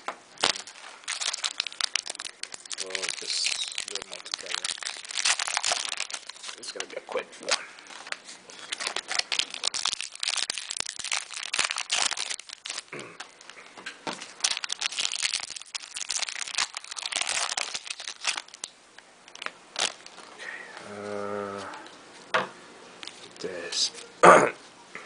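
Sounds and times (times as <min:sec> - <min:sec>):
foil wrapper crinkling and tearing: 0:00.4 - 0:20.3.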